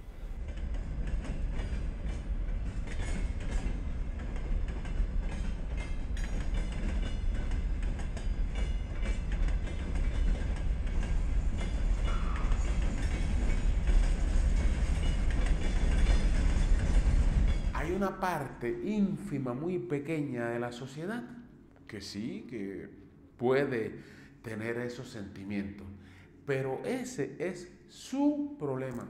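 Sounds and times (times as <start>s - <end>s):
freight train rumbling past: 0.0s - 20.0s
wheels clacking over rail joints: 0.5s - 17.8s.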